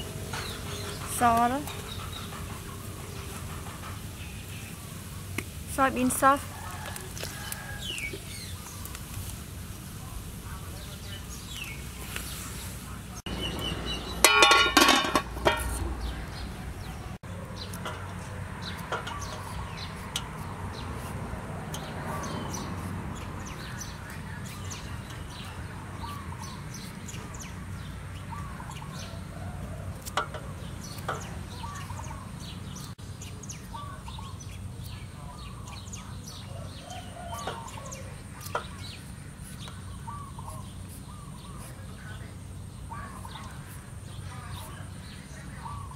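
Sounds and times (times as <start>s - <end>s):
metal pot lid clattering: 14.2s - 15.8s.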